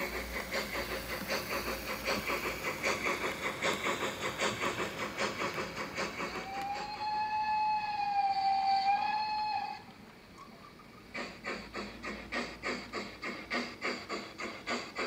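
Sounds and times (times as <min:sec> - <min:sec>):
model train steam exhaust beats: 0:00.0 - 0:15.0
long train whistle: 0:06.4 - 0:09.9.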